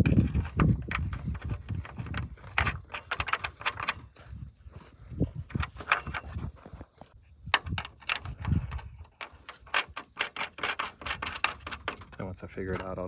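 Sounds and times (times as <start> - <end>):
metal nut clicking and clinking: 0.2 - 4.0, 5.6 - 6.5, 7.4 - 12.2.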